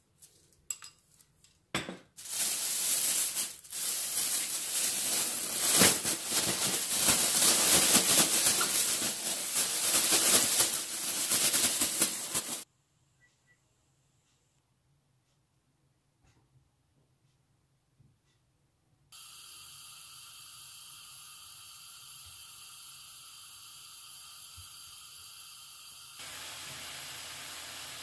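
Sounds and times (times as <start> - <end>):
plastic bag crinkling and rattling: 2.2 - 12.6.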